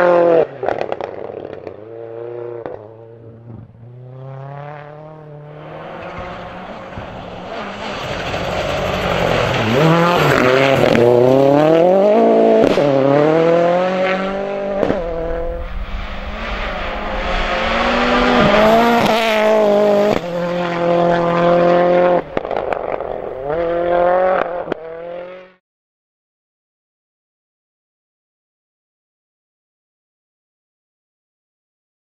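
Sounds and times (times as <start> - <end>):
rally car engine revving: 0.0 - 25.6.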